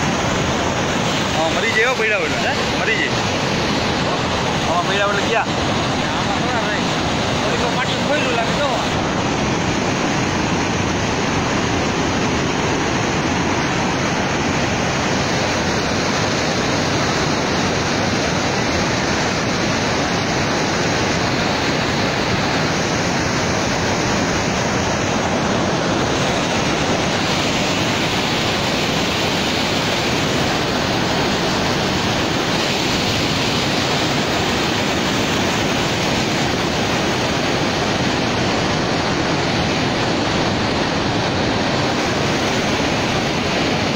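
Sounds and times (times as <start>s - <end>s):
water pouring over spillway: 0.0s - 43.9s.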